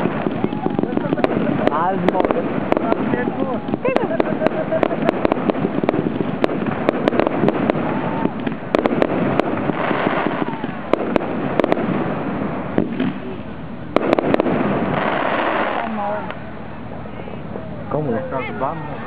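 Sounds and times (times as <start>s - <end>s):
people talking: 0.0s - 5.2s
fireworks bangs and crackles: 0.0s - 16.7s.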